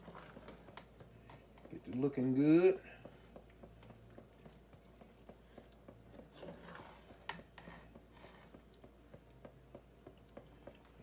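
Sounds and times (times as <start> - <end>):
metal spoon stirring in pot: 3.5 - 8.7.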